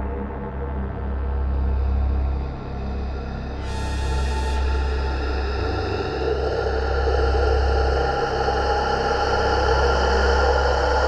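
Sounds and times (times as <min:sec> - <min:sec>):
eerie ambient drone music: 0:00.0 - 0:11.0.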